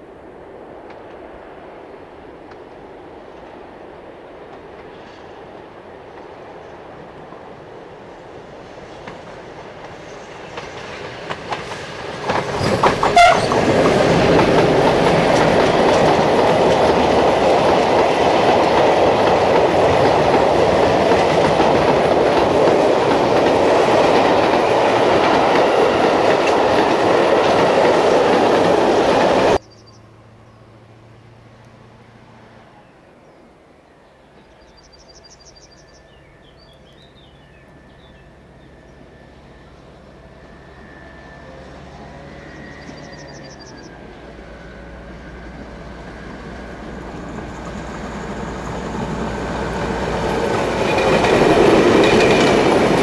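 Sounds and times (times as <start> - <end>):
freight train passing: 0.0 - 53.0
wagon wheels clickety-clack: 10.6 - 24.6.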